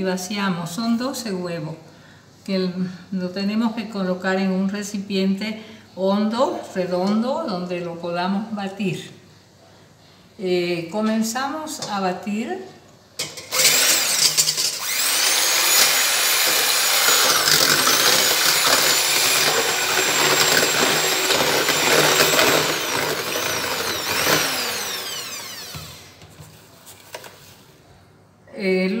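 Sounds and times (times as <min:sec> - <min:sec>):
electric hand mixer whine: 0:13.5 - 0:26.2.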